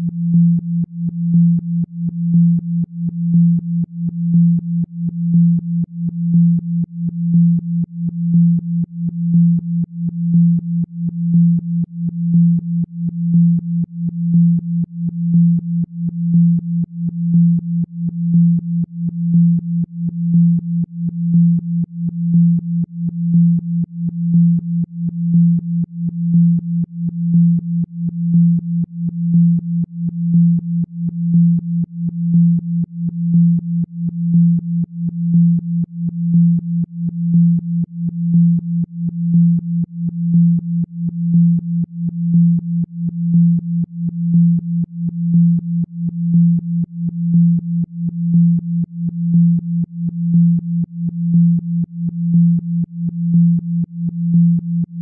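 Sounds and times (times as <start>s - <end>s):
pulsing low electronic tone: 0.0s - 55.0s.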